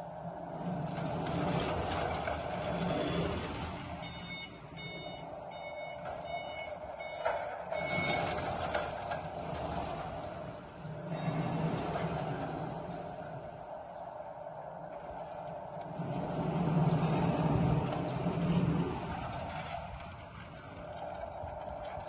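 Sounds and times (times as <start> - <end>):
electric truck drive humming: 0.0 - 22.0
short high warning beeps: 4.0 - 8.4.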